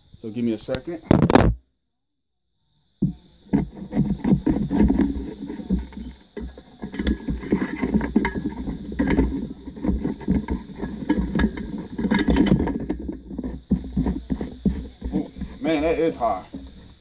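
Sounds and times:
handling knocks and clicks: 3.0s - 15.6s.

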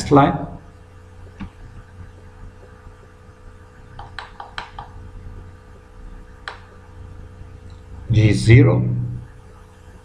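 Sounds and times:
low hum: 0.0s - 10.0s
computer mouse clicks: 3.9s - 5.0s, 6.4s - 6.7s.

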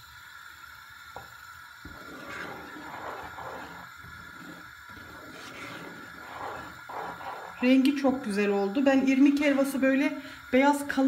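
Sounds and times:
wooden spoon stirring in pot: 1.8s - 10.1s.

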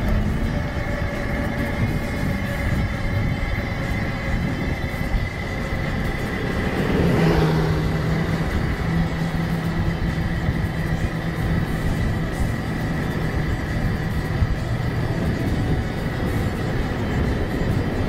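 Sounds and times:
low hum: 0.0s - 18.0s
moving vehicle running noise: 0.0s - 18.0s.

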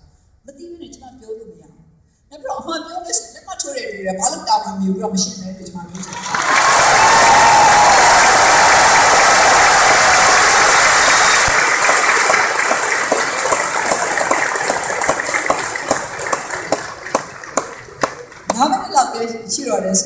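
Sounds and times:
audience applauding: 6.0s - 18.6s.

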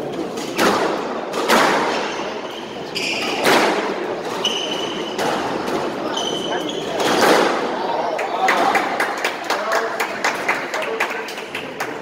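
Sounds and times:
sneakers squeaking on wooden floor: 1.9s - 7.4s.

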